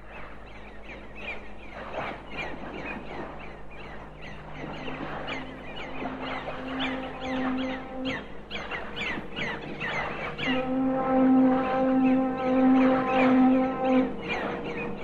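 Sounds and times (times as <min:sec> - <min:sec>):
seagull cries: 0:04.4 - 0:15.0
low held tone: 0:04.6 - 0:15.0.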